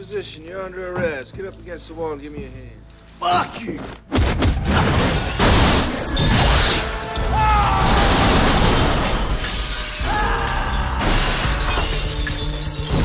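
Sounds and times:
dramatic film score: 0:00.0 - 0:13.0
window glass shattering: 0:04.8 - 0:13.0.

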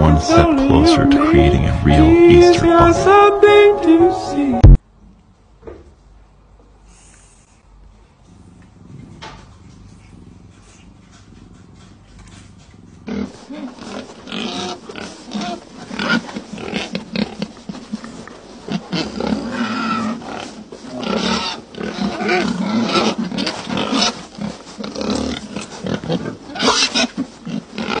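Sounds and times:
pig grunting and squealing: 0:12.9 - 0:28.0.

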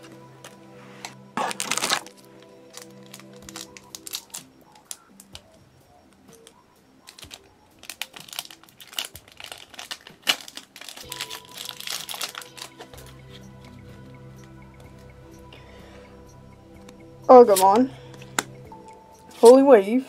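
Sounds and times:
quiet background music: 0:00.0 - 0:20.0
foil wrapper crinkling: 0:01.0 - 0:05.4, 0:07.0 - 0:13.2.

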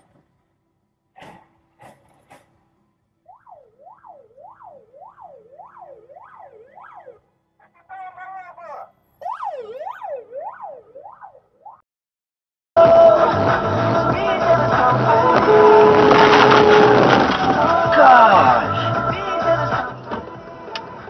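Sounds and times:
steady siren tone: 0:03.2 - 0:07.4, 0:09.2 - 0:11.8
electronic siren sweeping: 0:03.3 - 0:07.3, 0:09.2 - 0:11.8.

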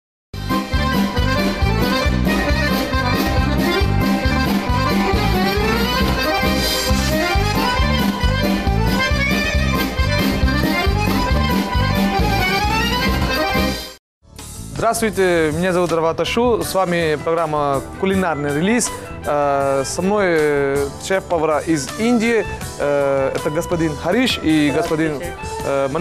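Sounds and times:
tv theme music with steady beat: 0:00.4 - 0:26.0.

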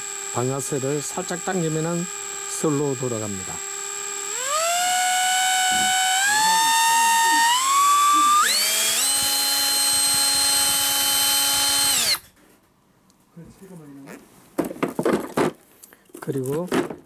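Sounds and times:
drill motor whine: 0:00.0 - 0:12.3.

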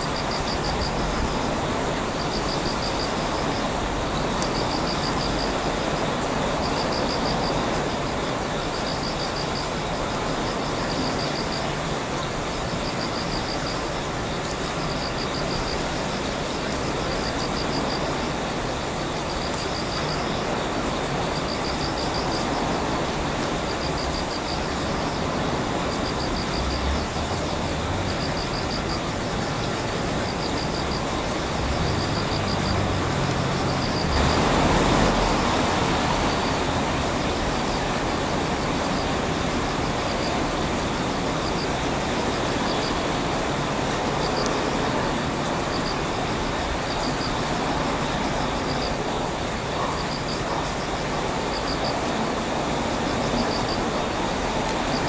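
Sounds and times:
distant rumble of trains: 0:00.0 - 0:55.0
road traffic: 0:00.0 - 0:55.0.

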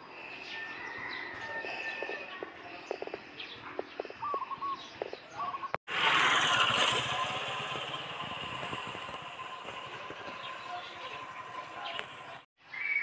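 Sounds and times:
bird chirps: 0:00.1 - 0:05.8, 0:08.6 - 0:13.0.

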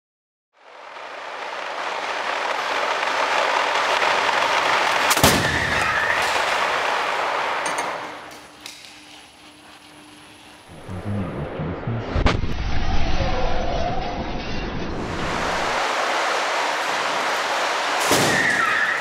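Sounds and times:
rushing trolley noise: 0:00.6 - 0:11.5, 0:13.2 - 0:19.0
sharp crash: 0:03.1 - 0:08.1, 0:11.1 - 0:19.0.

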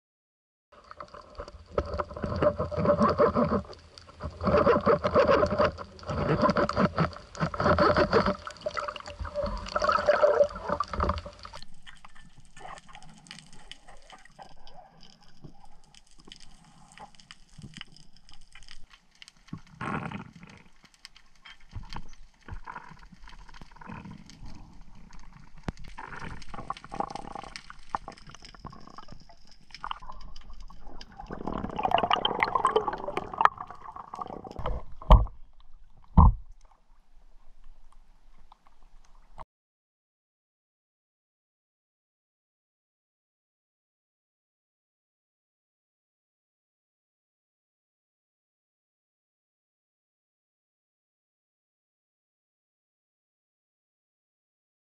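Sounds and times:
water gurgling and sloshing: 0:00.8 - 0:39.4.

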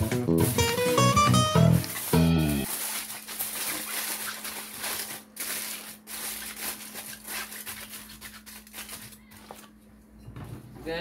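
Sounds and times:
aluminium foil crinkling: 0:01.7 - 0:09.8.

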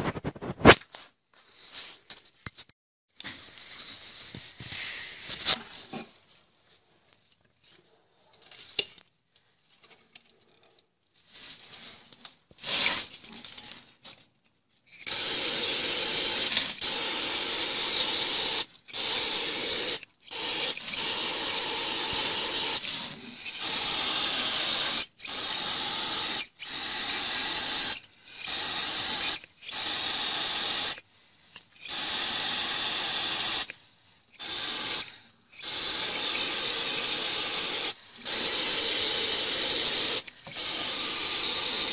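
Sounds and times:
aerosol spray hissing: 0:15.0 - 0:31.0, 0:31.8 - 0:33.7, 0:34.4 - 0:41.9.

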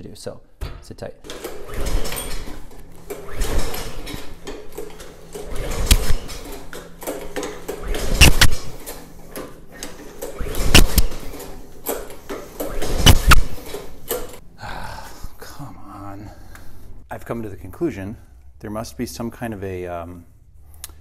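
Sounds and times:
mower engine pull-start cranking: 0:01.3 - 0:14.4.

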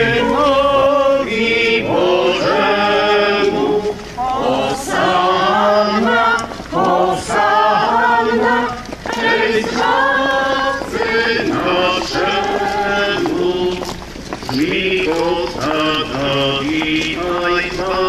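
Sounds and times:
crowd singing a hymn: 0:00.0 - 0:18.0.

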